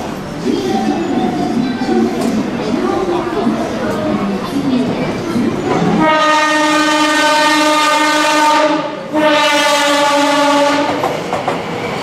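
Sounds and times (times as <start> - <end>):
train air horn blasts: 6.0 - 11.0.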